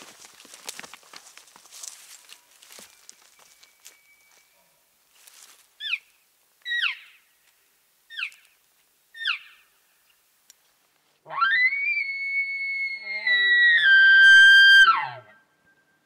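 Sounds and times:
brush rustling: 0.0 - 6.7
nasal elk calls: 5.8 - 7.2, 8.1 - 8.5, 9.1 - 9.7.

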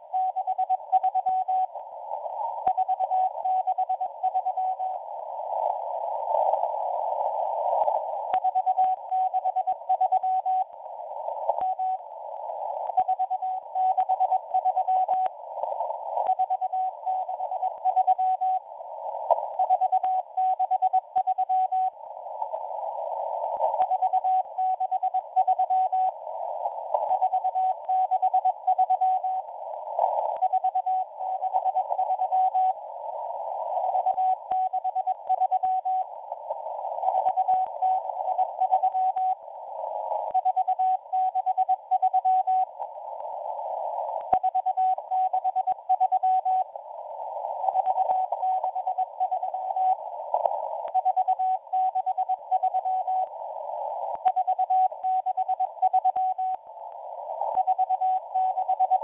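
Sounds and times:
radio receiver hiss: 0.0 - 59.0
static crackles: 0.0 - 59.0
morse code beep tone: 0.1 - 1.7, 2.7 - 5.0, 8.4 - 10.7, 12.9 - 15.3, 16.2 - 18.6, 19.6 - 22.0, 23.8 - 26.1, 27.1 - 29.4, 30.4 - 32.8, 33.9 - 36.0, 37.2 - 39.4, 40.3 - 42.7, 44.4 - 46.7, 47.6 - 50.0, 50.9 - 53.3, 54.2 - 56.6, 57.5 - 59.0.

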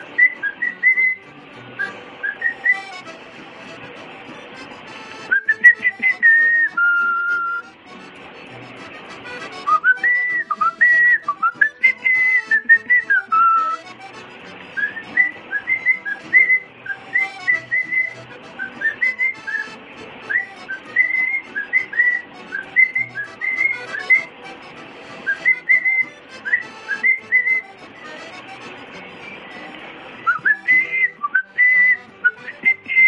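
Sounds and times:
cockatiel whistling: 0.0 - 1.2, 1.8 - 3.1, 5.1 - 7.7, 9.6 - 13.8, 14.8 - 24.3, 25.3 - 27.7, 30.2 - 33.0.

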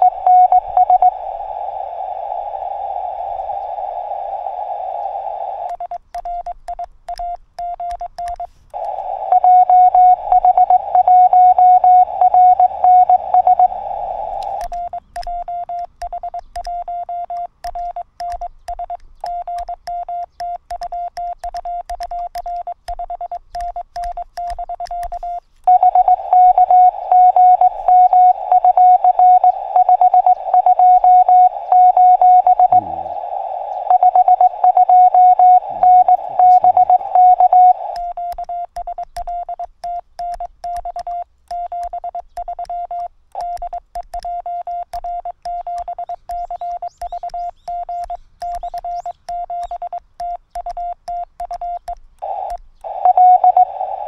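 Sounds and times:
morse code beep tone: 0.0 - 1.2, 5.7 - 33.0, 33.6 - 54.0
radio band noise hiss: 0.0 - 5.8, 8.4 - 11.4, 25.1 - 38.0, 52.2 - 54.0.

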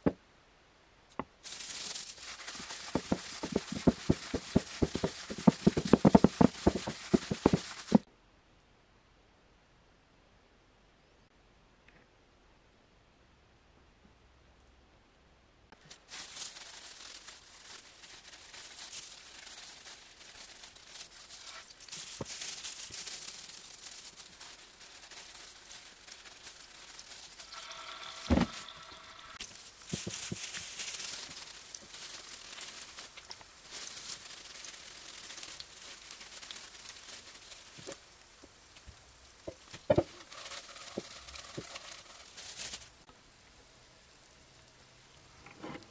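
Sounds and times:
hot oil sizzling and crackling: 1.4 - 8.1, 15.8 - 43.1.

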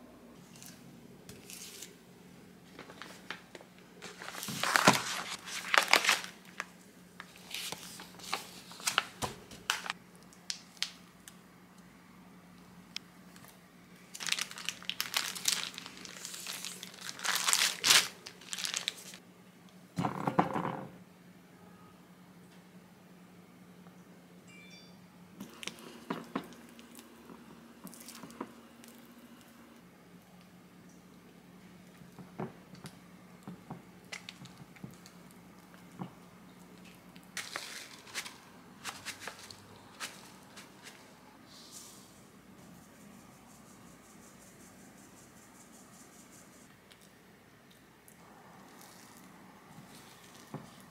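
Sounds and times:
faint steady hum: 0.0 - 50.9
plastic bag crinkling: 2.7 - 11.0, 14.0 - 19.2, 36.8 - 41.2, 48.6 - 50.9.

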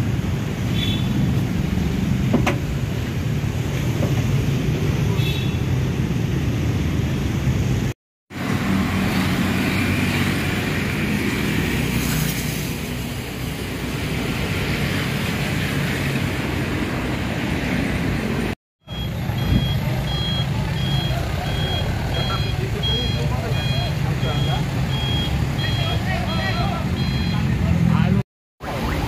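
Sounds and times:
bus engine idling: 18.9 - 27.3
reversing alarm beeping: 18.9 - 27.5.

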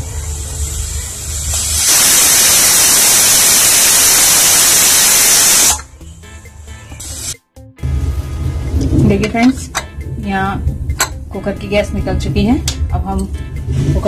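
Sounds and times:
pressure cooker whistling steam: 0.0 - 5.9.

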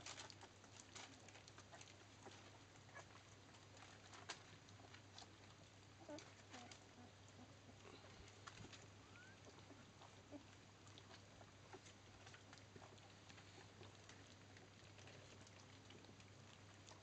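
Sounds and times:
puppies lapping food: 0.0 - 17.0.

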